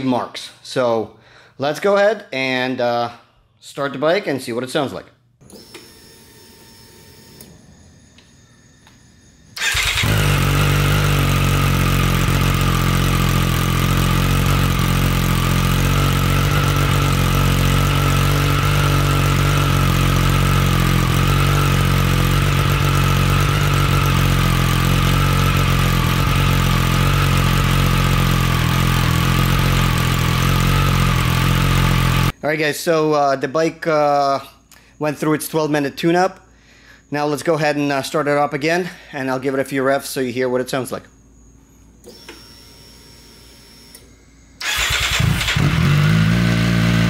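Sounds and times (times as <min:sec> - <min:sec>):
motorcycle engine idling: 0:09.6 - 0:32.3, 0:44.6 - 0:47.0.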